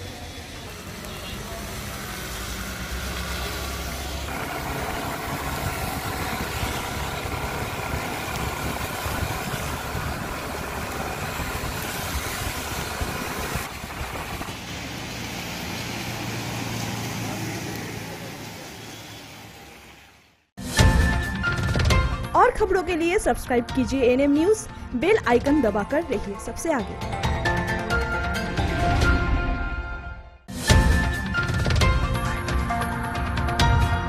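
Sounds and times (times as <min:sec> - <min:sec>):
rain: 0:00.0 - 0:20.4
tyres hissing on wet road: 0:00.0 - 0:20.4
scooter and car engines: 0:00.0 - 0:20.5.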